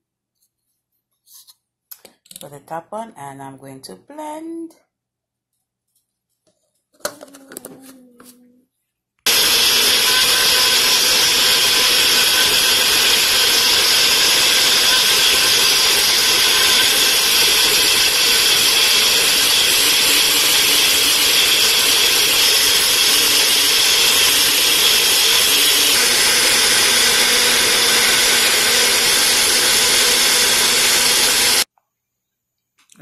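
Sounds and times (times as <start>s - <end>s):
blender running: 9.3s - 31.7s.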